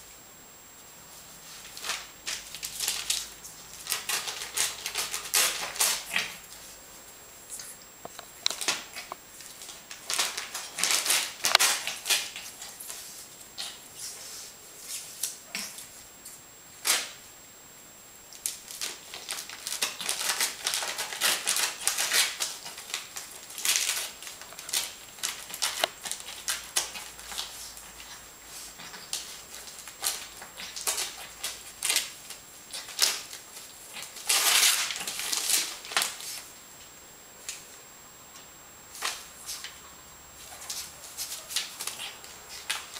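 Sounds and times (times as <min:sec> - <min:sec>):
puppy tearing paper: 0:01.4 - 0:06.7, 0:08.5 - 0:15.9, 0:18.4 - 0:36.5, 0:40.4 - 0:42.9.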